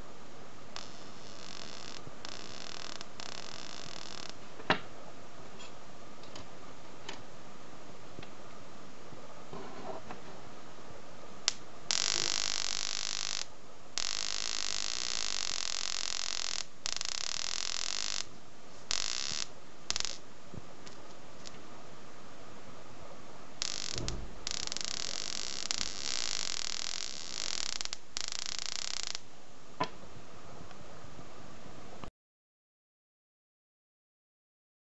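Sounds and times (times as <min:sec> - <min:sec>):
high-voltage sparking buzz: 0:00.7 - 0:04.4, 0:11.4 - 0:20.3, 0:23.6 - 0:29.3.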